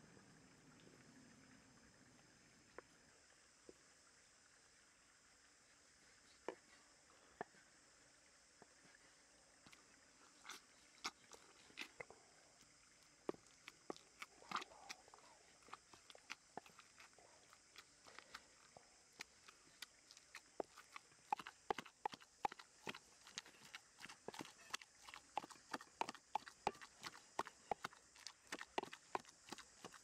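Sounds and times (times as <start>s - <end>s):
wooden pestle pounding in mortar: 20.6s - 30.0s.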